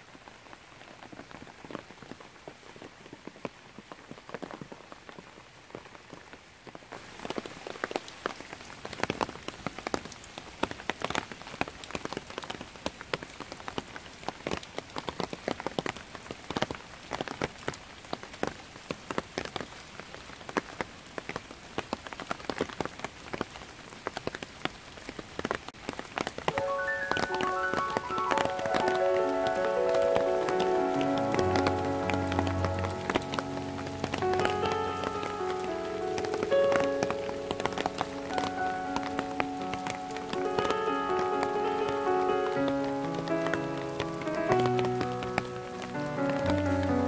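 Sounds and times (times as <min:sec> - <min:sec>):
heavy rain on leaves: 0:00.0 - 0:47.0.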